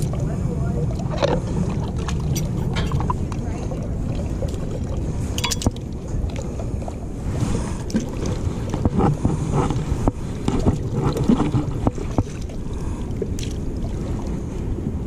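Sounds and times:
wind rumbling on microphone: 0:00.0 - 0:15.0
fish cleaning clicks and scrapes: 0:01.0 - 0:03.4, 0:05.3 - 0:05.8, 0:07.9 - 0:12.6.

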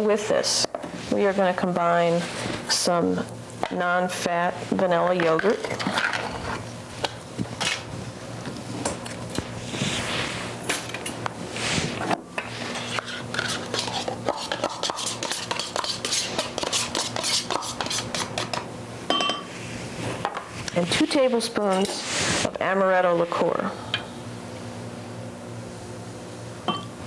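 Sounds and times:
low steady hum: 0:00.0 - 0:27.0
dishes clattering on countertop: 0:18.5 - 0:19.5.

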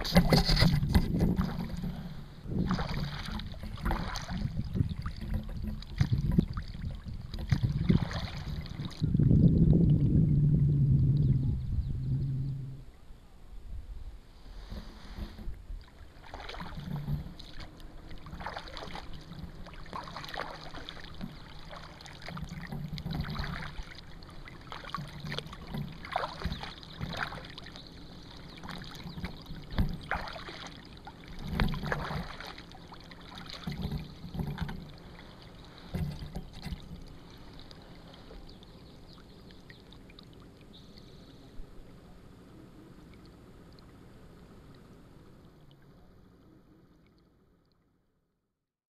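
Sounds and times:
paddle knocking: 0:00.0 - 0:09.0, 0:14.5 - 0:39.9
paddle strokes splashing water: 0:00.0 - 0:10.3, 0:14.3 - 0:47.4.

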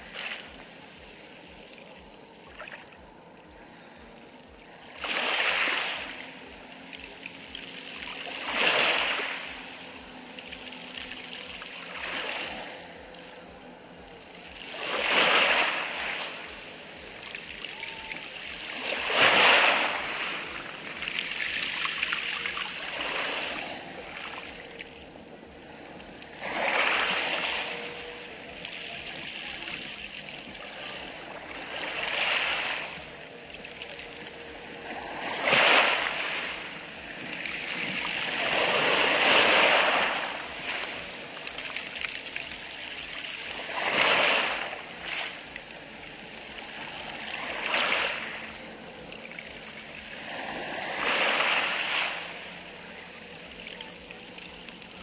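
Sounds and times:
waves washing over pebble beach: 0:04.0 - 0:55.0.

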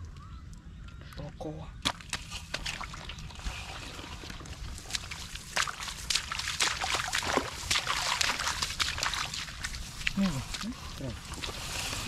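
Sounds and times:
splashing in shallow water: 0:01.8 - 0:12.0.

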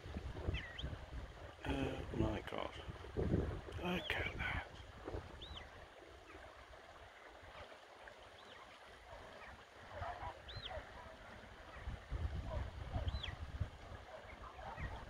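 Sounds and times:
wind buffeting microphone: 0:00.0 - 0:05.8, 0:09.8 - 0:15.0
faint high whistled calls: 0:10.2 - 0:10.9, 0:12.9 - 0:13.4.

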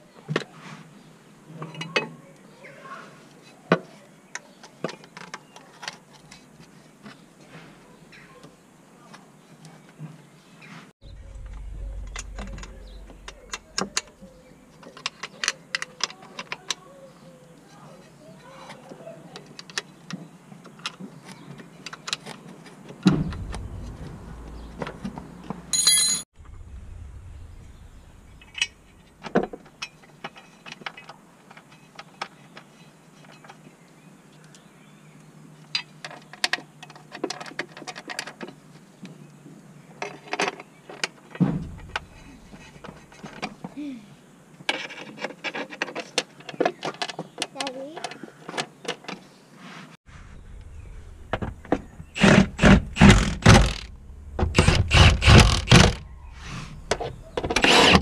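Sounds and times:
short ringing clink: 0:25.7 - 0:26.2
heavy metal knock: 0:41.4 - 0:42.2.

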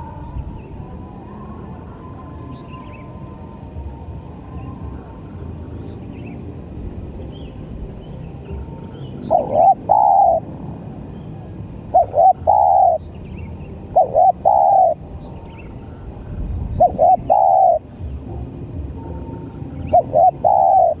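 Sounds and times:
dove cooing: 0:08.2 - 0:21.0.

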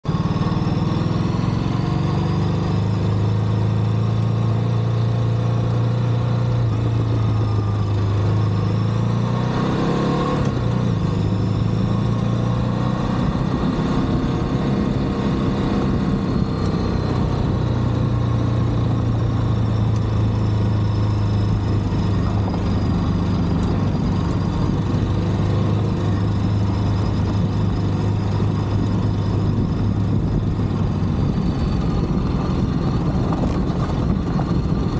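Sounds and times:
motorcycle engine running: 0:00.0 - 0:34.9
wind noise on microphone: 0:21.2 - 0:34.9.

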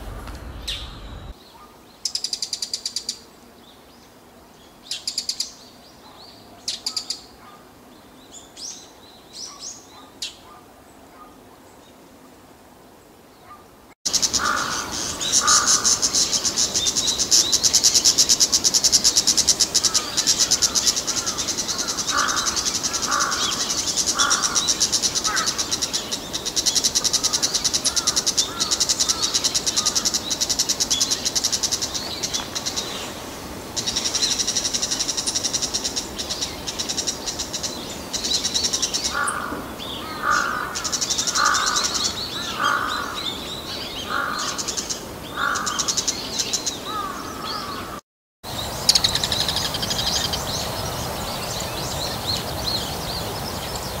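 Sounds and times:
shrike harsh alarm calls: 0:00.0 - 0:01.4, 0:14.1 - 0:30.6, 0:38.6 - 0:43.4, 0:44.1 - 0:46.0.

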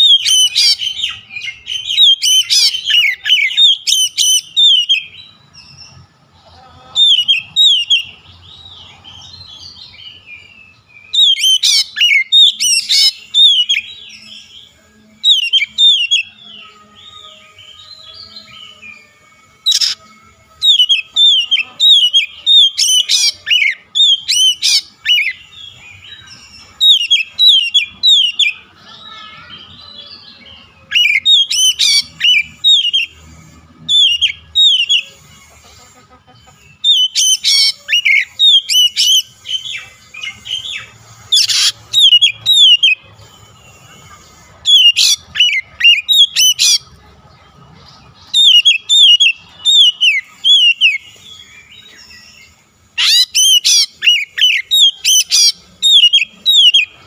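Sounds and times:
bird singing whistles: 0:10.1 - 0:19.0, 0:19.6 - 0:28.6, 0:29.9 - 0:33.2, 0:33.8 - 0:35.2, 0:36.8 - 0:43.8, 0:48.3 - 0:57.0.

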